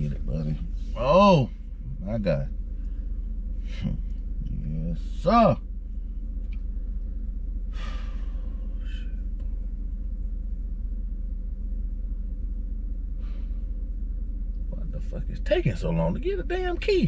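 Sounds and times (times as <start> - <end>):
vehicle engine idling: 0.0 - 17.0
breathy exhale: 7.7 - 9.2, 13.2 - 13.8.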